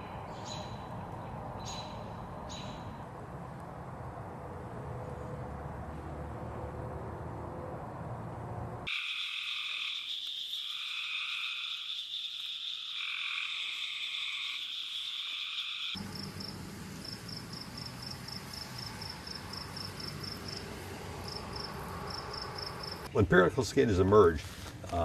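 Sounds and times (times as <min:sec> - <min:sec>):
cicadas buzzing: 0:08.9 - 0:23.1.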